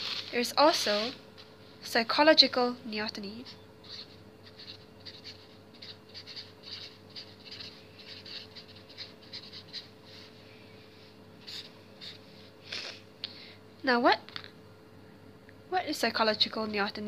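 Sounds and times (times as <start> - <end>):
marker scratching on paper: 0.0 - 1.2, 3.4 - 10.3, 11.4 - 12.5.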